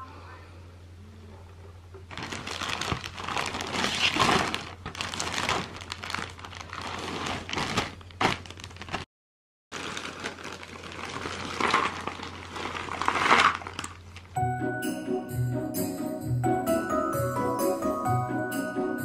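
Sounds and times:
plastic bag crinkling: 0:02.1 - 0:09.1, 0:09.7 - 0:14.4.

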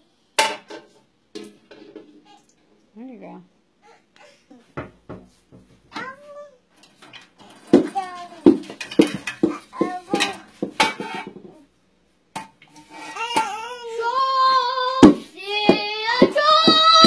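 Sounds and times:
child singing wordless tune: 0:07.8 - 0:08.6, 0:09.7 - 0:10.5, 0:13.2 - 0:17.0.

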